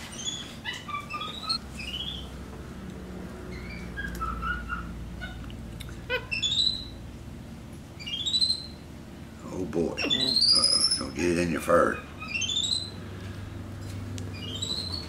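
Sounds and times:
monkey chirping: 0.1 - 2.3, 3.5 - 5.5, 6.1 - 7.0, 8.0 - 8.8, 10.0 - 13.0, 14.3 - 15.0.

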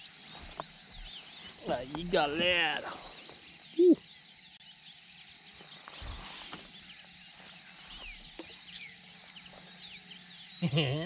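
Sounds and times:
small birds chirping: 0.0 - 11.0
soft rush of hiss: 5.7 - 8.1.

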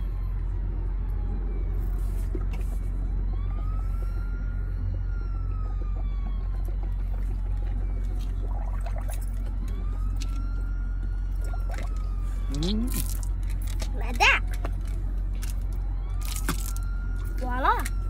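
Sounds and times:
emergency siren wailing: 0.0 - 18.0
low rumble: 0.0 - 18.0.

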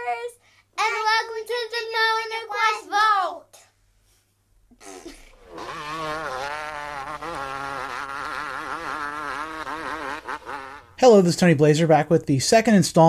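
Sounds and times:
dirt bike engine revving: 5.0 - 11.0.

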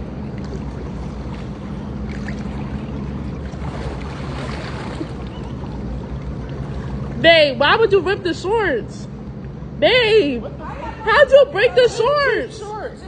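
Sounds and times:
pool water splashing: 0.0 - 9.7
steady low hum: 0.0 - 13.0.

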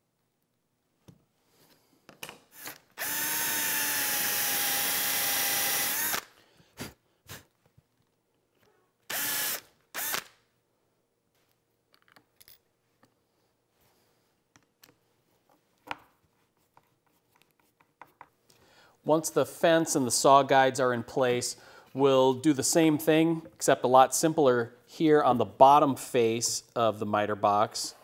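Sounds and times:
cordless drill boring wood: 2.6 - 6.3, 9.1 - 10.3.

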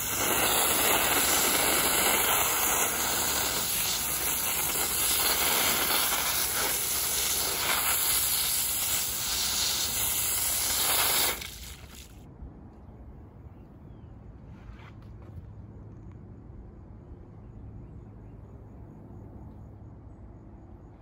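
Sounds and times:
high-pressure hose jet hissing: 0.0 - 12.2.

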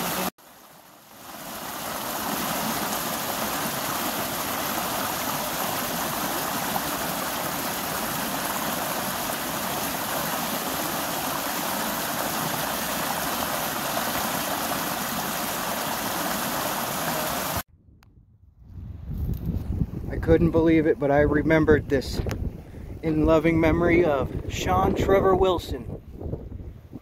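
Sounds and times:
creek water cascading: 0.0 - 17.6.

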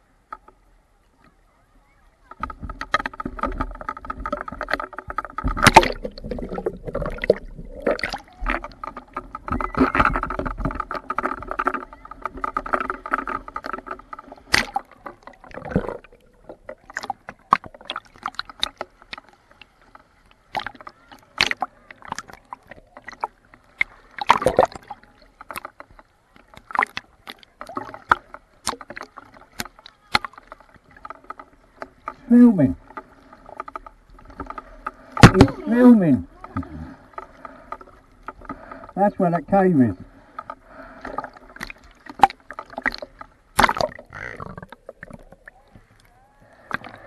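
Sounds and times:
underwater hum of held tones: 0.0 - 47.0
sharp underwater knocks: 2.4 - 19.4, 23.0 - 25.9, 26.6 - 39.0, 40.4 - 45.4.

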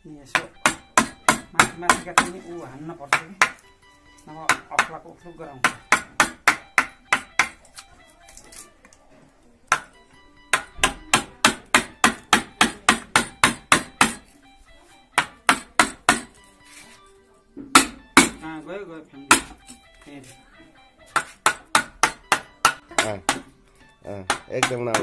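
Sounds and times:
mallet striking chisel into wood: 0.3 - 2.5, 3.1 - 3.7, 4.4 - 5.0, 5.6 - 7.6, 9.7 - 14.3, 15.2 - 16.4, 17.6 - 18.5, 19.2 - 19.8, 21.1 - 23.6, 24.2 - 25.0.

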